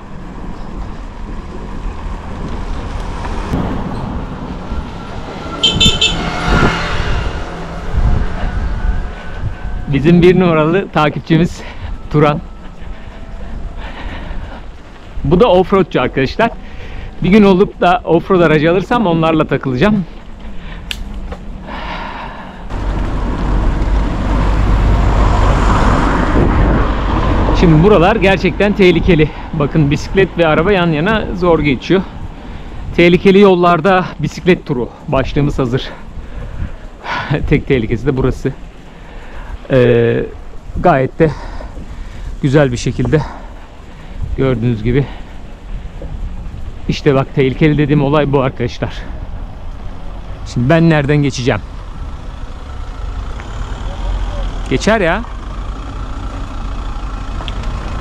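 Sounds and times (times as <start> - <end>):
motor vehicle passing: 0.0 - 33.0, 35.6 - 58.0
wind and road noise: 0.0 - 58.0
car driving past: 1.4 - 13.8, 22.7 - 28.8.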